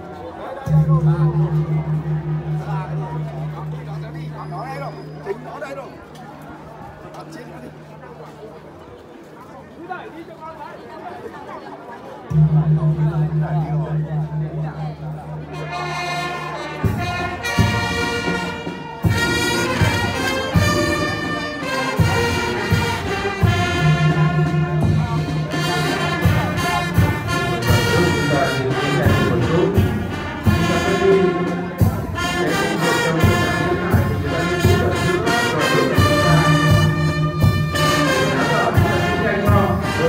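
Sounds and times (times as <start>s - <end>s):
brass band playing: 0.0s - 5.4s, 12.3s - 40.0s
drum beat: 0.7s - 4.6s.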